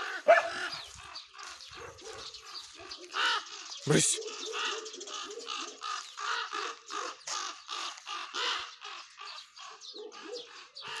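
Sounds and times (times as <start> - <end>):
raven cawing: 3.1 - 3.8, 4.6 - 9.9.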